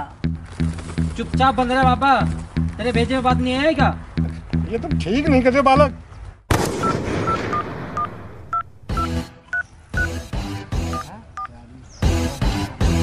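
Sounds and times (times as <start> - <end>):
background music: 0.0 - 6.1, 8.0 - 13.0
phone keypad beeps: 6.8 - 10.2, 10.9 - 11.6.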